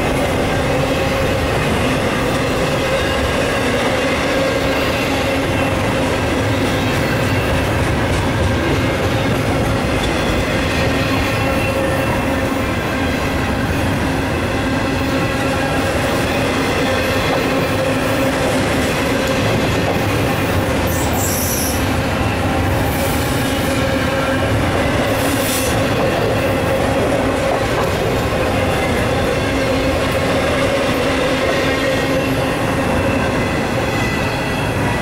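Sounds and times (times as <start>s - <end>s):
train wheels rolling on rail: 0.0s - 35.0s
high-pitched wheel squeals: 20.9s - 24.4s.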